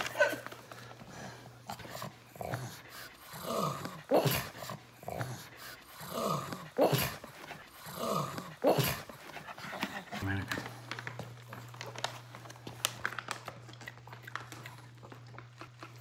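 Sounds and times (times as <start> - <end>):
dog grunting and snorting: 0.0 - 10.7.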